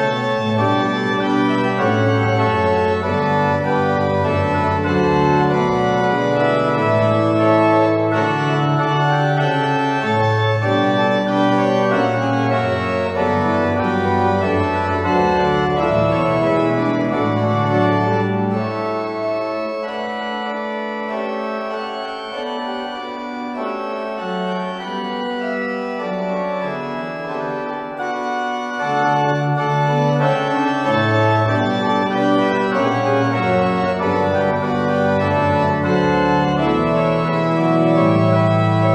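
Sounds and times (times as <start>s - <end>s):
pipe organ chords: 0.0s - 38.9s.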